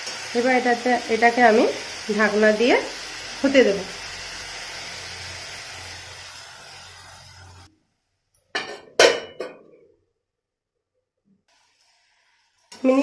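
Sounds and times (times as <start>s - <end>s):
vegetables sizzling in a pan: 0.0s - 7.7s, 11.5s - 13.0s.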